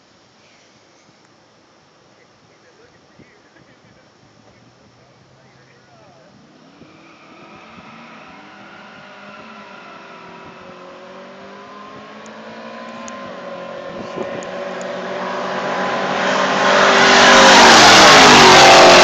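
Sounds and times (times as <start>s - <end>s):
racing car engines passing: 4.6s - 19.0s.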